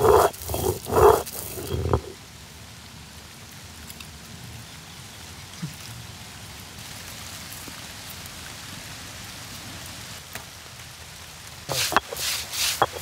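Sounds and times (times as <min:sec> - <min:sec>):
stone roller scraping on stone: 0:00.0 - 0:02.2, 0:11.7 - 0:13.0
rain falling: 0:00.0 - 0:13.0.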